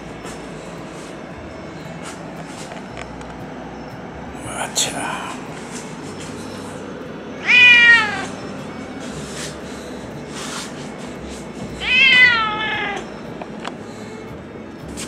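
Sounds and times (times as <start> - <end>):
cat meowing: 7.4 - 8.3, 11.8 - 13.1.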